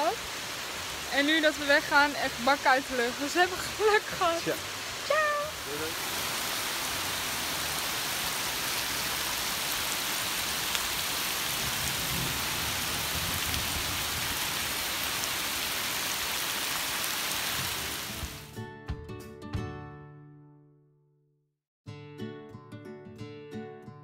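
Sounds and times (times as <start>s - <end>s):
heavy rain on foliage: 0.0s - 18.5s.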